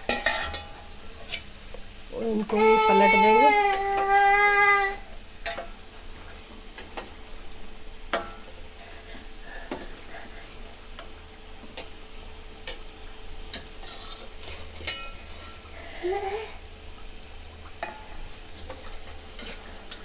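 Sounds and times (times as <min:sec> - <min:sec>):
spoon knocking pan: 0:00.0 - 0:00.8, 0:08.1 - 0:08.5, 0:17.8 - 0:20.0
oil sizzling: 0:00.0 - 0:20.0.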